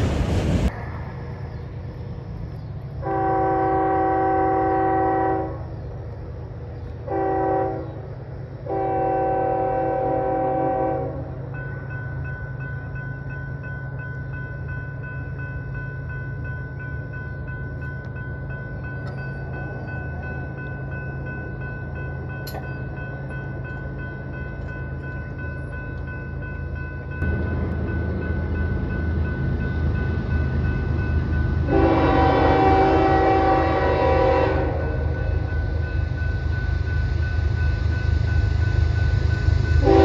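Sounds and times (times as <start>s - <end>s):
locomotive engine rumbling: 0.0s - 40.0s
locomotive horn blasts: 3.0s - 5.6s, 7.0s - 8.0s, 8.7s - 11.3s, 31.6s - 35.3s, 39.8s - 40.0s
crossing signal bell ringing: 11.5s - 40.0s.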